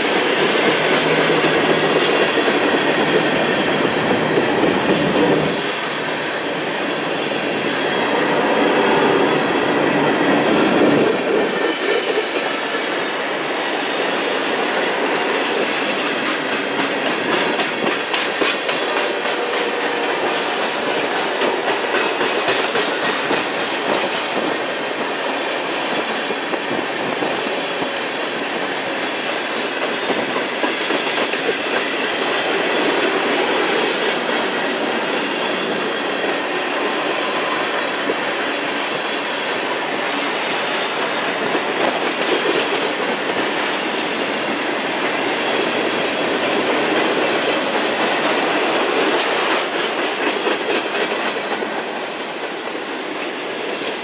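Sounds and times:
steel wheels rumbling on rail: 0.0s - 54.0s.

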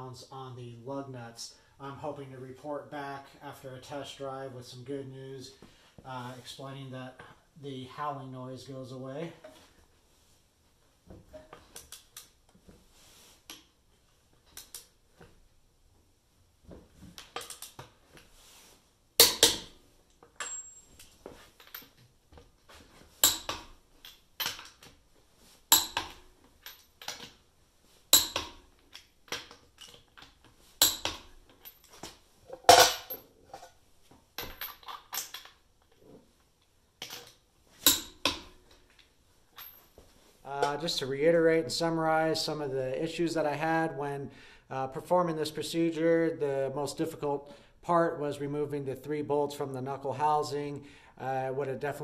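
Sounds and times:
metal clinks and ratcheting: 30.8s - 33.7s, 34.4s - 35.6s.

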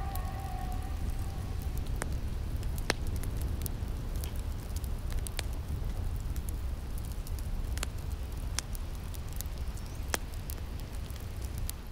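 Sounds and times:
low steady rumble: 0.0s - 5.1s.

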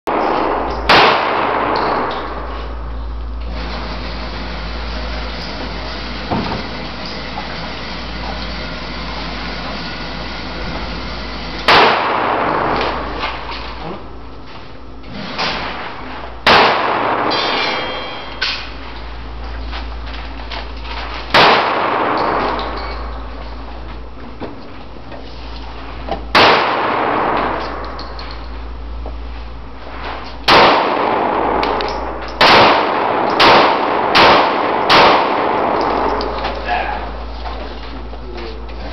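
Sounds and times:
loud pistol shot: 0.1s - 2.4s, 11.6s - 13.5s, 15.4s - 18.3s, 21.3s - 22.8s, 26.3s - 27.9s, 30.4s - 31.8s, 32.4s - 36.4s
steady background hum: 0.1s - 38.9s.

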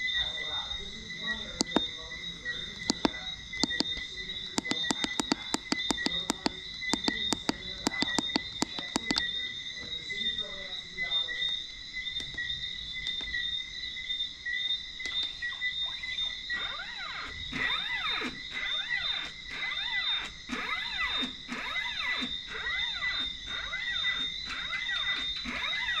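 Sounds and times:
crickets chirping: 0.0s - 26.0s
stepper motor whine: 16.0s - 26.0s.

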